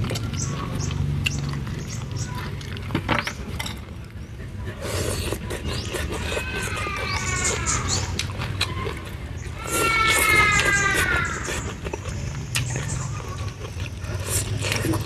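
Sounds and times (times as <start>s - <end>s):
chewing and lip-smacking: 0.0s - 15.0s
noodles slurped: 4.4s - 15.0s
falling animal call: 9.6s - 11.7s.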